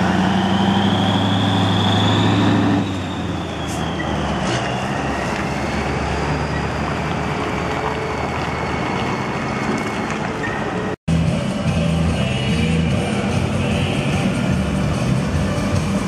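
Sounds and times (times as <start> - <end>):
truck diesel engine: 0.0 - 16.0
high whistle: 0.2 - 5.4.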